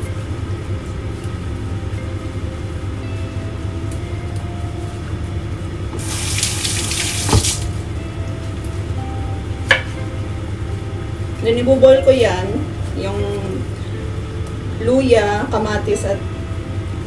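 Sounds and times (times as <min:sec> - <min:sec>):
steady low hum: 0:00.0 - 0:17.0
water running from tap: 0:06.0 - 0:07.8.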